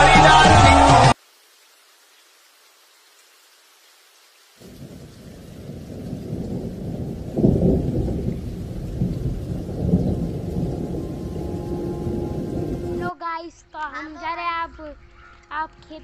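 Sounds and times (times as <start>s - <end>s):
rain: 0.0s - 13.2s
thunder rumbling: 4.6s - 13.1s.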